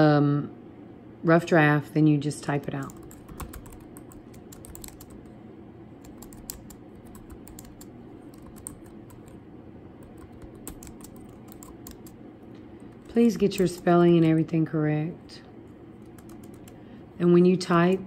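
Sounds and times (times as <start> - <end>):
keyboard typing: 2.7 - 5.4, 6.0 - 9.4, 10.0 - 14.5, 15.9 - 16.8.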